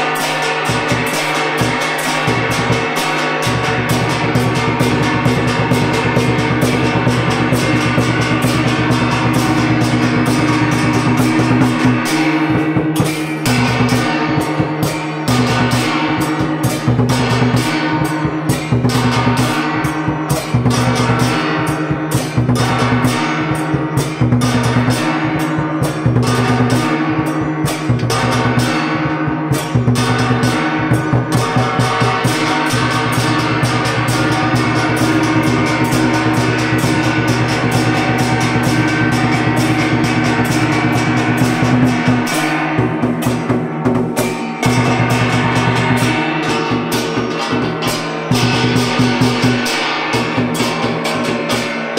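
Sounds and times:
gongs beaten with mallets: 0:00.0 - 0:51.9
large barrel drum: 0:00.0 - 0:51.9.

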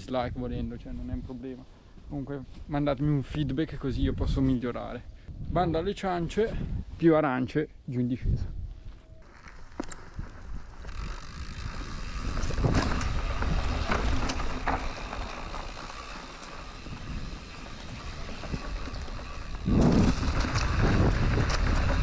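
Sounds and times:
wind buffeting microphone: 0:05.3 - 0:07.0, 0:08.2 - 0:22.0
bike clicking and rattling: 0:09.2 - 0:22.0
tyres rolling on dirt: 0:09.2 - 0:22.0.

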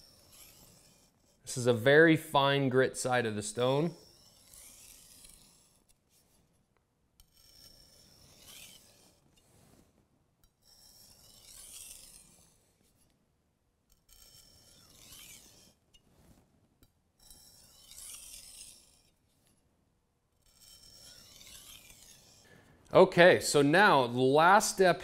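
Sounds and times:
knife scraping on whetstone: 0:00.0 - 0:01.8, 0:03.0 - 0:06.6, 0:07.2 - 0:13.2, 0:13.9 - 0:19.6, 0:20.4 - 0:22.5.

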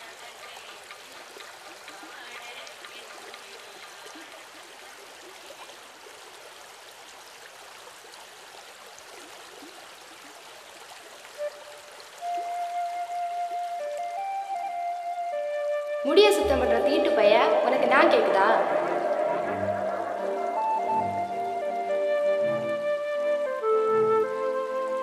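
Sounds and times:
flowing water: 0:00.0 - 0:25.0
music with held notes: 0:11.4 - 0:25.0.

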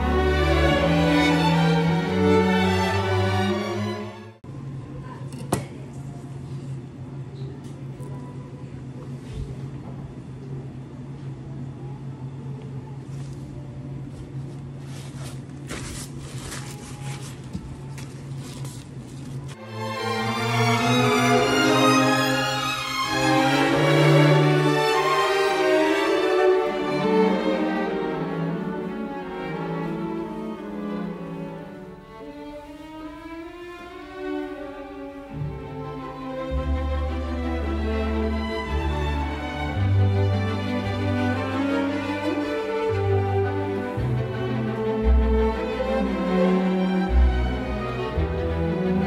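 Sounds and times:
paper towel rustling: 0:14.1 - 0:19.6.

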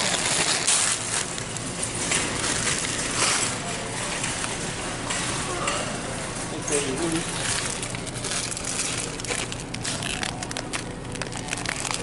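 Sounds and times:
plastic candy bags crinkling: 0:00.0 - 0:04.7, 0:06.6 - 0:12.0.

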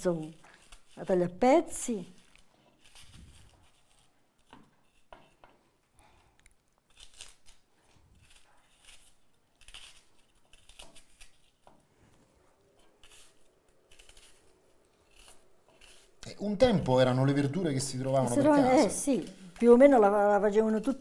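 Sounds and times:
knife cutting onion: 0:06.8 - 0:11.9, 0:12.7 - 0:21.0.

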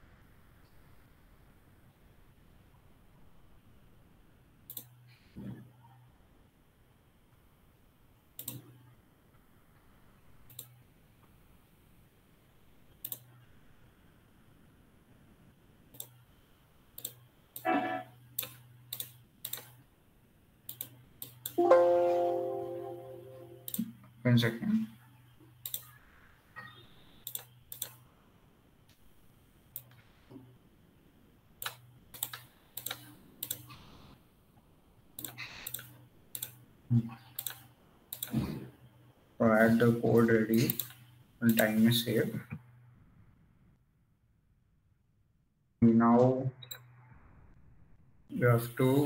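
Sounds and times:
faint steady hiss: 0:00.0 - 0:43.8, 0:48.2 - 0:49.0
computer mouse clicks: 0:04.7 - 0:05.0, 0:08.4 - 0:08.8, 0:10.4 - 0:10.8, 0:13.0 - 0:13.3, 0:15.9 - 0:16.2, 0:16.9 - 0:17.7, 0:18.3 - 0:19.8, 0:20.6 - 0:21.6, 0:23.6 - 0:23.9, 0:25.6 - 0:26.0, 0:26.6 - 0:28.0, 0:29.7 - 0:30.0, 0:31.6 - 0:34.0, 0:35.2 - 0:36.6, 0:37.2 - 0:38.4, 0:40.6 - 0:41.8.

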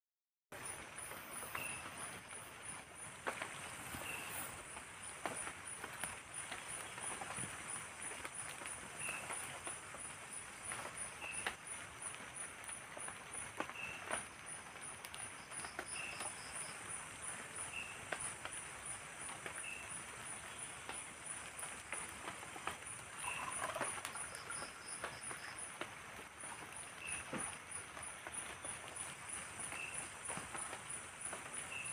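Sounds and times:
rain patter with drips: 0:00.6 - 0:31.9.

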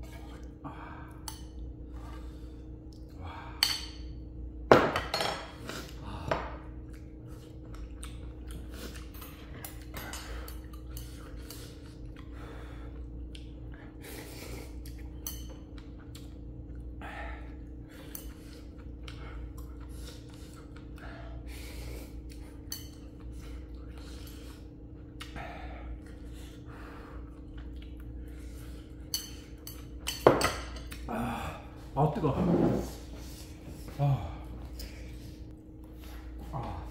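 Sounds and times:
steady low hum: 0:00.0 - 0:36.9
chewing and mouth noises: 0:06.6 - 0:30.1
utensils clinking against bowl: 0:14.9 - 0:15.8, 0:22.6 - 0:23.2, 0:29.1 - 0:31.1.

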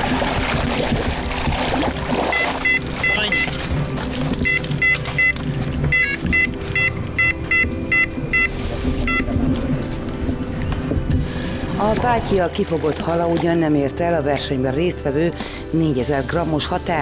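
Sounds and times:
bite alarm short high beeps: 0:02.3 - 0:03.6, 0:04.4 - 0:09.3.

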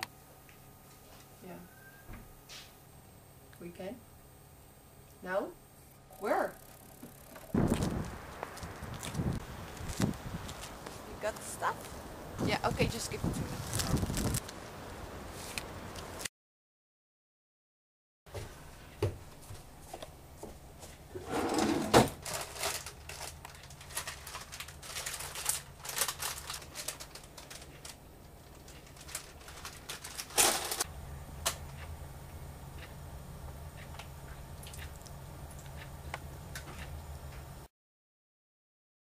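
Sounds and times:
steady low hum: 0:00.0 - 0:16.2, 0:18.4 - 0:37.7
plastic wrapper crinkling: 0:13.3 - 0:14.6, 0:22.1 - 0:30.9.

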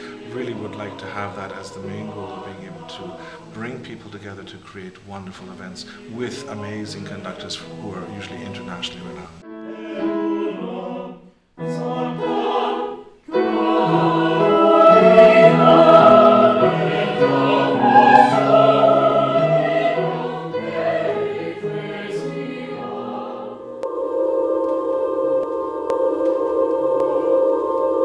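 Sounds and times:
choir singing sustained chords: 0:00.0 - 0:28.0
steady held tone: 0:13.3 - 0:21.2, 0:23.6 - 0:28.0.

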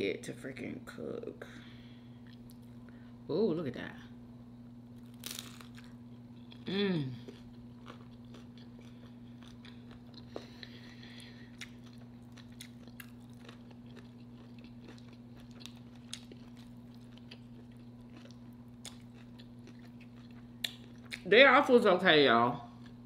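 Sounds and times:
steady low hum: 0:00.0 - 0:23.0
person chewing crunchy food: 0:05.0 - 0:21.3.

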